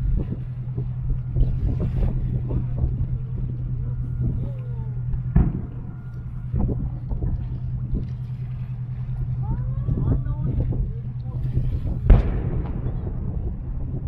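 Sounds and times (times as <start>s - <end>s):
low hum: 0.0s - 14.0s
distant firework boom: 5.1s - 8.0s, 11.4s - 14.0s
scattered voices: 6.5s - 13.5s.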